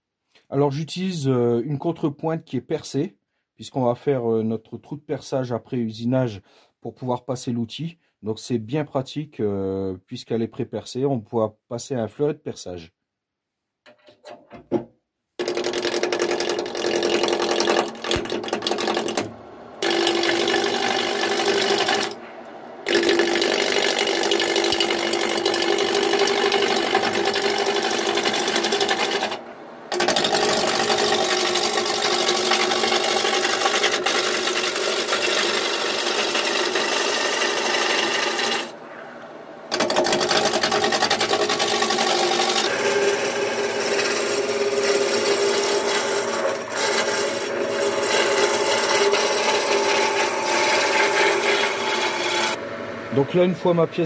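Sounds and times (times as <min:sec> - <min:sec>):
turning tool cutting wood: 0:15.4 - 0:39.1, 0:39.7 - 0:52.6
wood lathe humming: 0:15.4 - 0:54.0.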